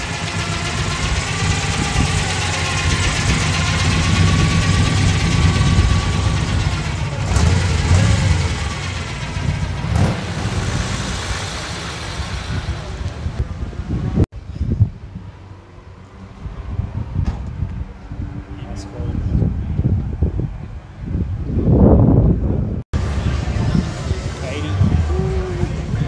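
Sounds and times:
pickup truck engine rumbling: 0:00.0 - 0:14.4, 0:21.1 - 0:26.0.

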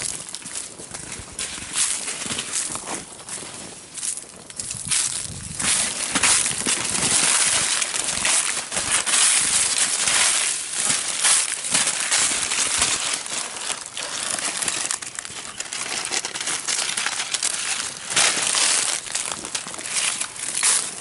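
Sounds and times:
footsteps crunching dry leaves: 0:00.0 - 0:21.0.

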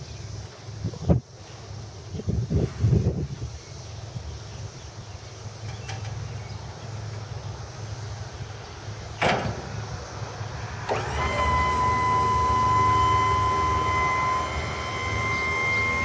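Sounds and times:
single clunk: 0:09.2 - 0:09.7
hydraulic pump motor whine: 0:10.8 - 0:16.0.

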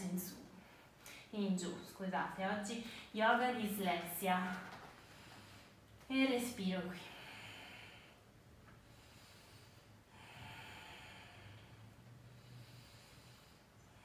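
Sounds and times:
woman breathing deeply: 0:05.0 - 0:06.0, 0:07.0 - 0:14.0.

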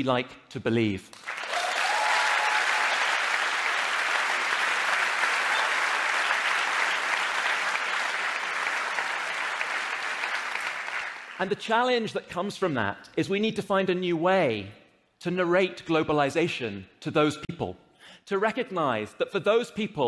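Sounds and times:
audience applauding: 0:01.2 - 0:11.4.

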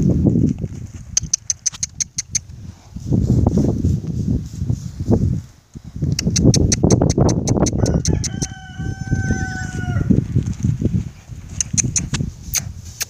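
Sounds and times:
horse hooves trotting on dirt: 0:00.0 - 0:05.4, 0:06.2 - 0:13.0
rooster crowing: 0:07.8 - 0:10.2.

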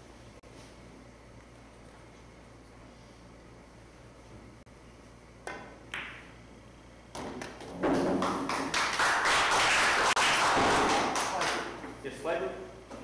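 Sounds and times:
cue tapping ball: 0:05.5 - 0:06.3
billiard balls clacking: 0:07.2 - 0:08.7.

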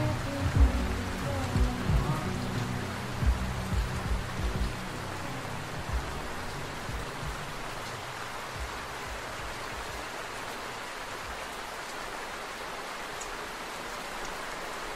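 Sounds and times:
steady rain: 0:00.0 - 0:14.9
faint low thuds: 0:00.5 - 0:02.3, 0:03.2 - 0:04.8, 0:05.9 - 0:07.6.

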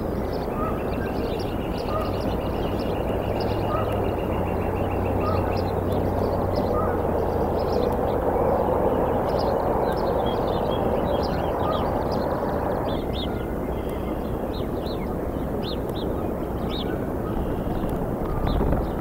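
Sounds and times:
high wild bird calls: 0:00.0 - 0:19.0
background rumble: 0:16.9 - 0:19.0.

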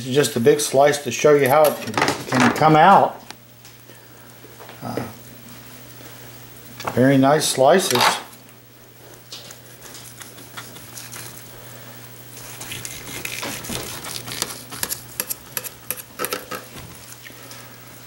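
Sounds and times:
knife sawing through meat: 0:12.4 - 0:15.3.

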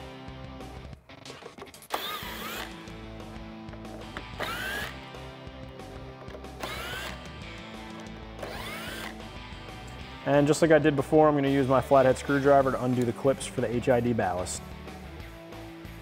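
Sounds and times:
power tool motor whining: 0:01.9 - 0:03.0, 0:04.1 - 0:05.1, 0:06.4 - 0:09.2.

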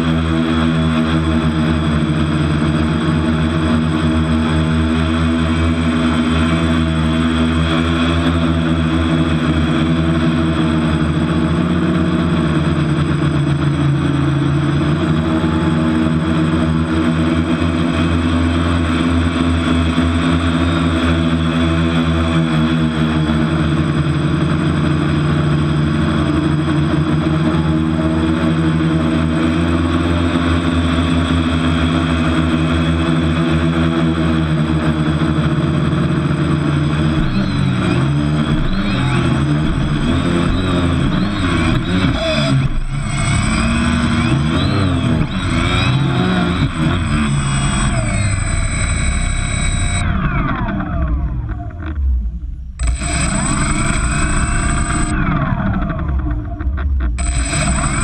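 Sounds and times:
quadcopter motors whining: 0:00.0 - 0:58.0.

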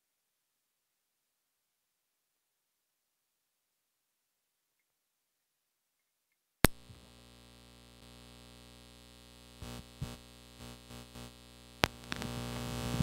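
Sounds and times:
electrical hum and buzz: 0:06.6 - 0:13.0.

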